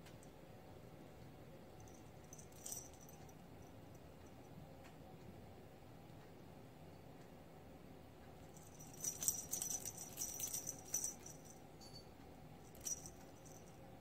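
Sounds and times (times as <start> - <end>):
small bell jingling: 1.8 - 3.4, 8.5 - 13.8.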